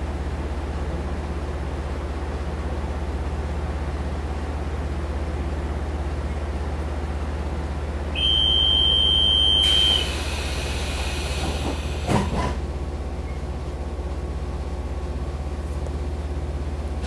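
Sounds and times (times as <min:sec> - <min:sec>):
sliding doors hissing: 0:09.6 - 0:12.6.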